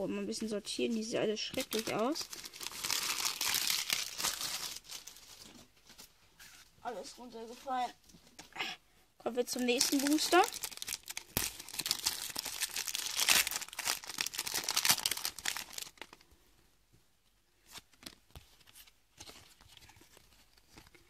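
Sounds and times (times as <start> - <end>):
cards rustling: 1.0 - 6.6, 17.6 - 21.0
foil pack tearing and crinkling: 1.6 - 5.4, 9.7 - 16.2.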